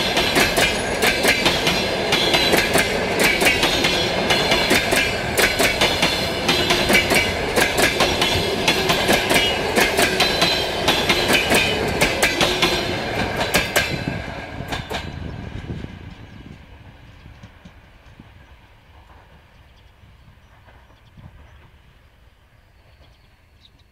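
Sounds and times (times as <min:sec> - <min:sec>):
train wheels clacking over rail joints: 0:00.0 - 0:19.8.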